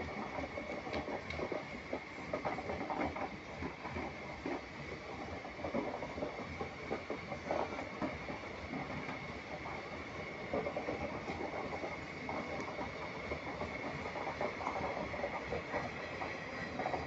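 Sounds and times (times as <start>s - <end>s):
wheels clattering on rails: 0.0s - 17.0s
train coaches rumbling past: 8.2s - 17.0s.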